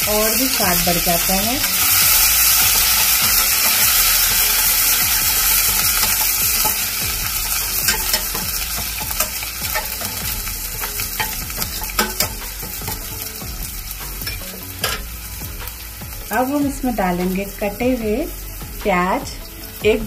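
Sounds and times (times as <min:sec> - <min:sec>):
spices sizzling in hot oil: 0:00.0 - 0:20.0
spatula scraping metal pot: 0:01.7 - 0:13.0
spatula clinking on metal: 0:05.6 - 0:13.2.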